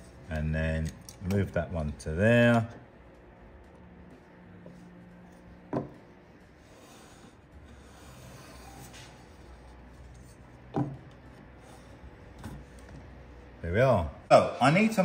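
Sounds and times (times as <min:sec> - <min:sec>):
pencil rubbing on wood: 0:06.6 - 0:09.5.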